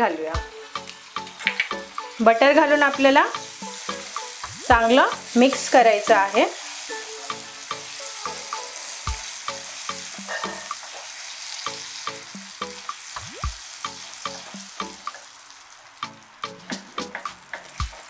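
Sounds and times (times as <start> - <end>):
butter sizzling in caramel: 0.0 - 18.0
spatula scraping pan: 9.6 - 11.4.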